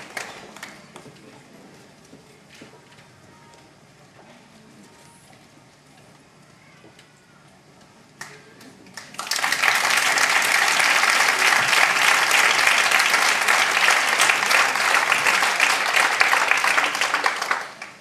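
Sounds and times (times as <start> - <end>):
audience applauding: 0.0 - 1.1, 9.0 - 18.0.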